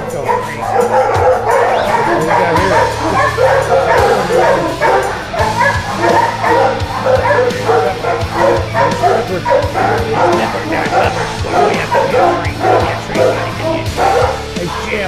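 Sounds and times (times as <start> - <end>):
many dogs barking and yelping: 0.0 - 15.0
music: 0.0 - 15.0.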